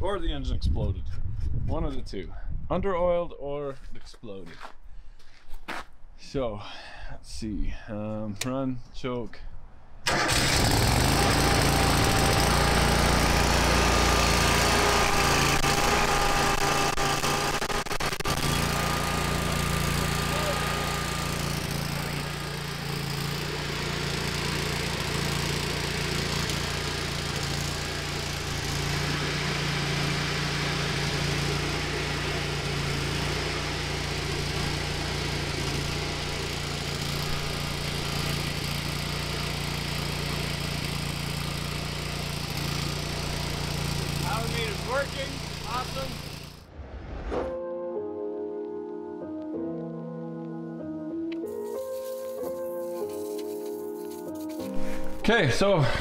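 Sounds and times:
welder engine starting and running: 10.0s - 46.7s.

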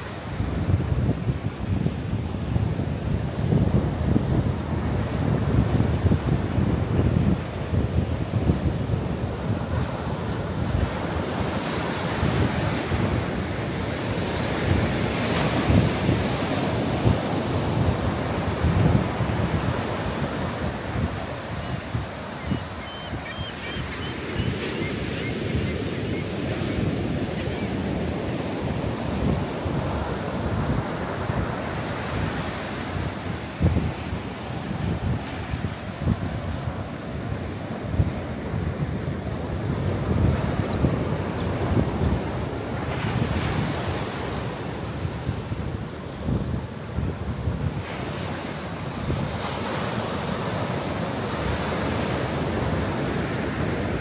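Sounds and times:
ocean surf breaking on beach: 0.0s - 54.0s
wind buffeting microphone: 0.0s - 54.0s.

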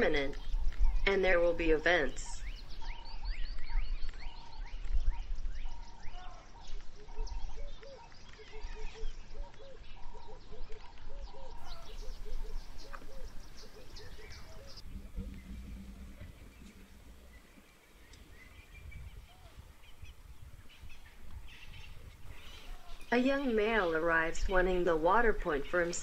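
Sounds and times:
birds calling low hooked notes: 0.0s - 26.0s
steady low rumble: 12.0s - 22.2s.

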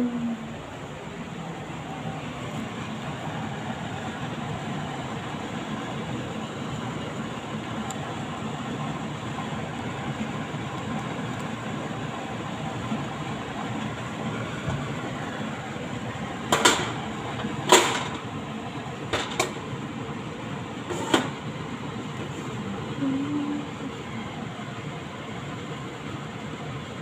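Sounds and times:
kitchen rumbling: 16.5s - 18.3s, 19.0s - 19.7s.

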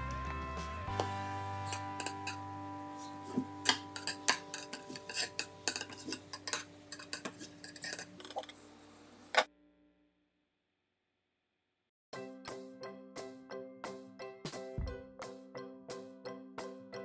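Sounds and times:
soft background music: 0.0s - 6.7s, 12.2s - 17.0s
knife clinking on ceramic plate: 3.6s - 8.1s.

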